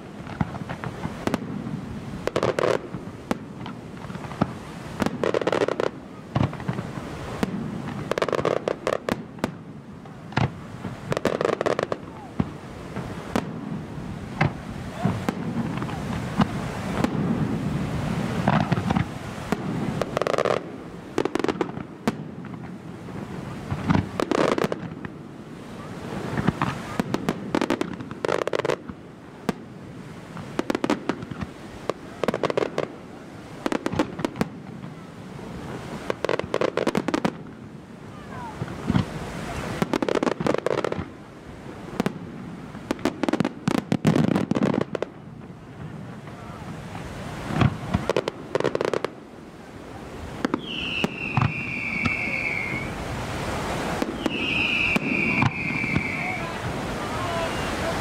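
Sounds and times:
sharp firework bangs: 10.3s - 22.8s, 23.6s - 25.2s, 50.4s - 58.0s
firework shells bursting: 53.6s - 56.9s.

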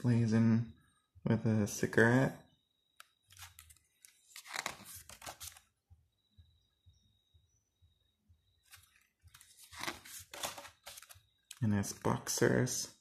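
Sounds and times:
glossy paper pages rustling: 3.2s - 5.7s, 8.6s - 11.3s.

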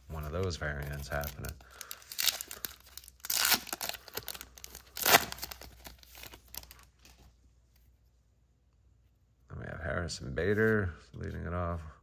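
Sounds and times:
wrapper tearing and crinkling: 0.1s - 6.9s.

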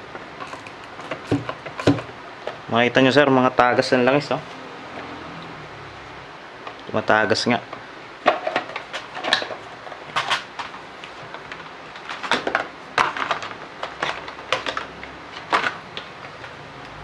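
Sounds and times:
plastic parts clicking and knocking: 0.4s - 2.6s, 8.2s - 16.6s.

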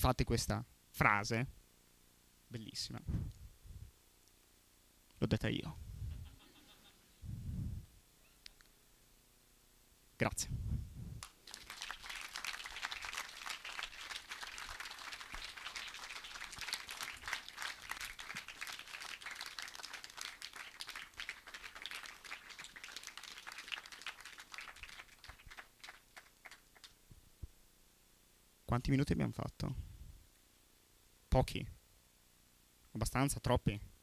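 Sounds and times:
audience applauding: 11.2s - 27.0s.

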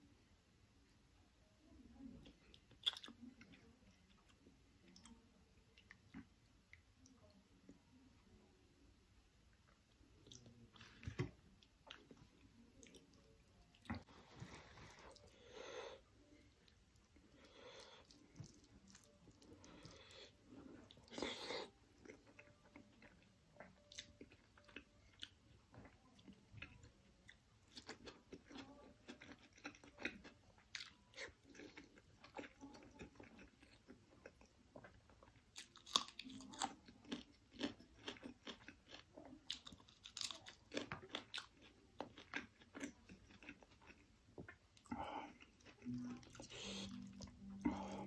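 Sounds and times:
wet chewing and mouth clicks: 2.3s - 7.2s, 16.7s - 48.0s.

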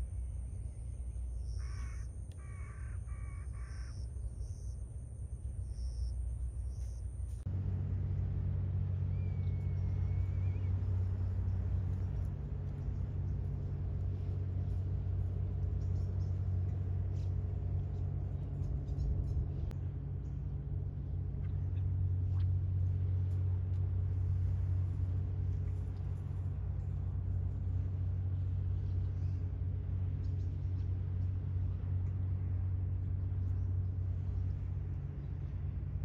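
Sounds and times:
low outdoor rumble: 0.0s - 36.0s
faint ticks: 1.7s - 2.5s.

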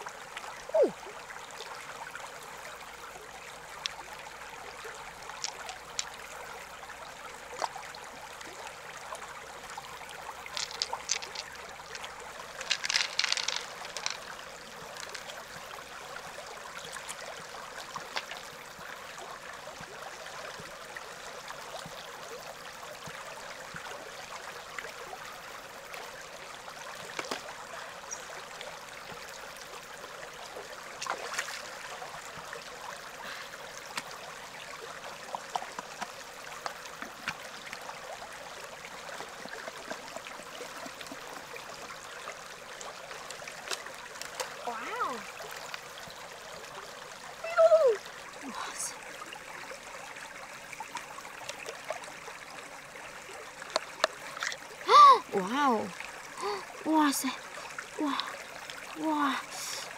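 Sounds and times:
river water flowing and trickling: 0.0s - 59.9s
short splashes and knocks: 31.0s - 31.7s.

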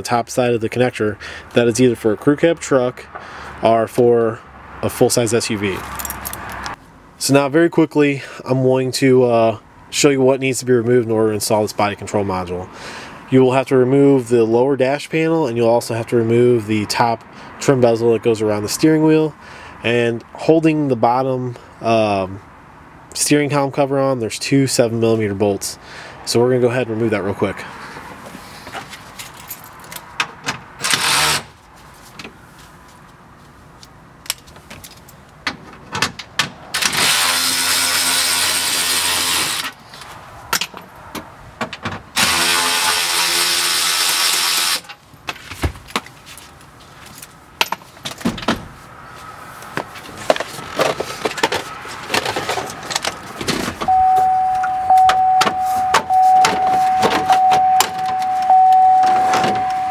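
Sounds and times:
steady high tone: 53.9s - 59.9s.

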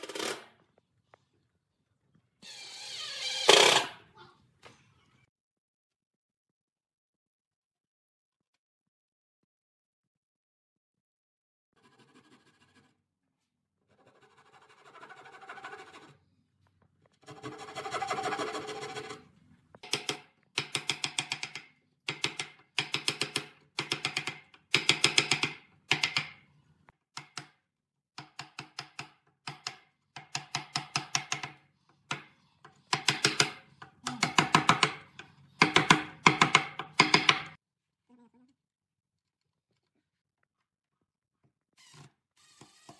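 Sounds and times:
mallet tapping steel chisel: 19.8s - 26.4s, 28.2s - 37.6s.

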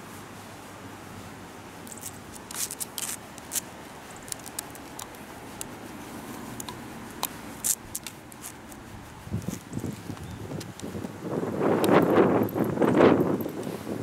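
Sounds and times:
fur rustling against microphone: 0.0s - 14.0s
scattered clicks: 1.8s - 5.8s, 6.6s - 8.8s.

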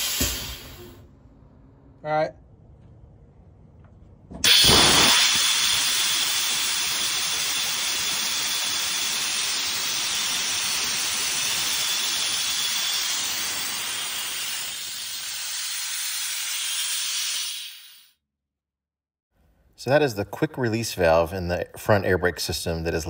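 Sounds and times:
compressed air hissing: 0.0s - 1.0s, 4.4s - 18.1s.

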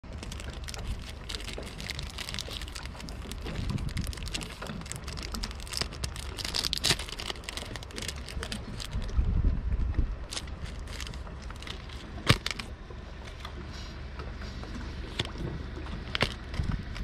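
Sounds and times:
paper crinkling: 0.0s - 9.1s, 10.3s - 12.7s
wind buffeting microphone: 0.2s - 12.7s, 15.3s - 17.0s.

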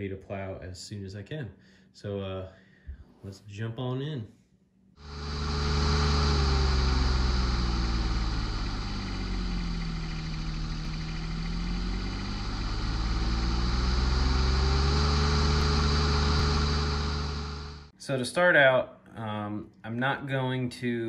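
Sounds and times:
engine running: 5.0s - 17.9s.

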